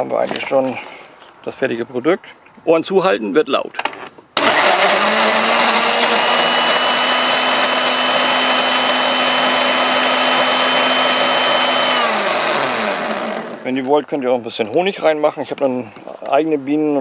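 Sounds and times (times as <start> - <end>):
blender whirring: 4.4 - 13.7.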